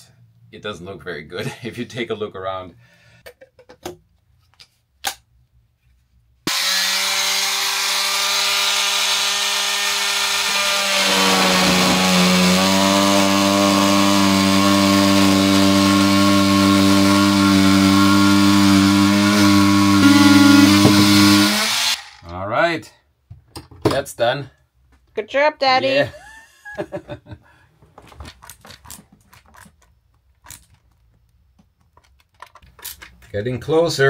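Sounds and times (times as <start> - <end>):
oscillating multi-tool cutting wood: 6.5 - 22.2.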